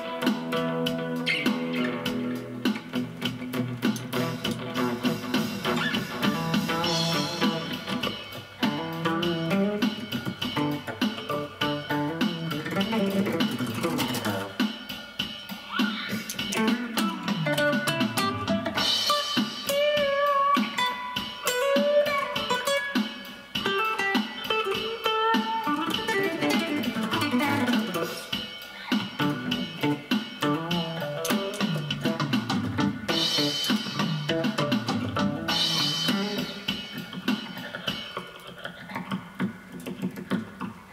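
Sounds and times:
clean electric-amplified guitar playing: 0.0 - 14.6, 23.6 - 28.3, 29.2 - 36.7.

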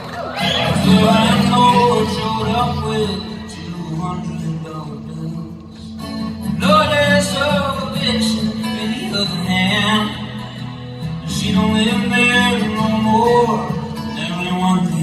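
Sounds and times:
strummed acoustic guitar: 0.0 - 15.0
man singing: 0.4 - 15.0.

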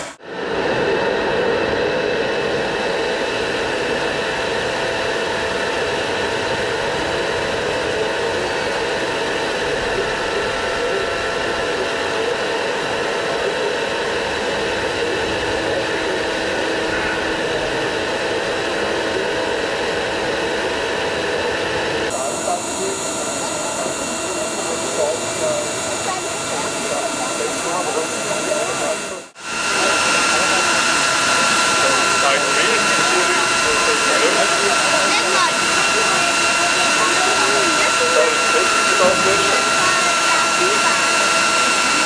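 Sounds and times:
loud hiss: 22.1 - 41.2
small electric motor whirring: 22.1 - 42.0.

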